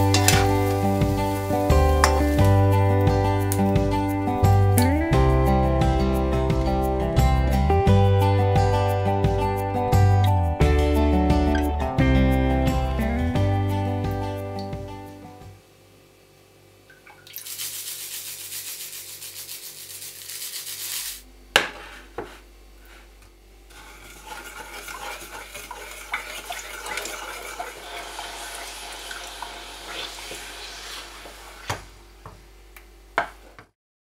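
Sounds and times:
liquid pouring into a pot: 17.0s - 20.8s, 23.7s - 31.7s
wooden spoon scraping a steel pot: 23.7s - 26.5s.

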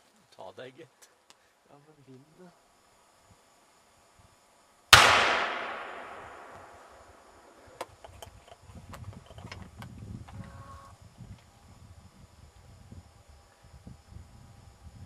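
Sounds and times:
rifle shot echoing: 5.0s - 7.2s.

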